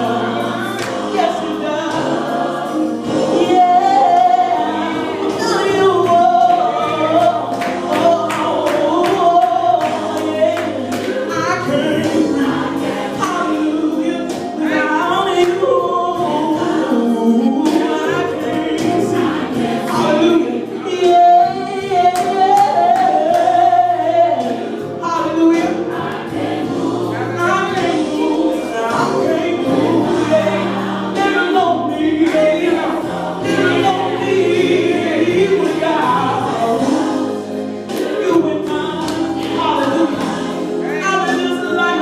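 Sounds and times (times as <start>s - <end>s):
woman singing into microphone: 0.0s - 2.4s, 3.2s - 25.8s, 27.2s - 42.0s
choir singing: 0.0s - 42.0s.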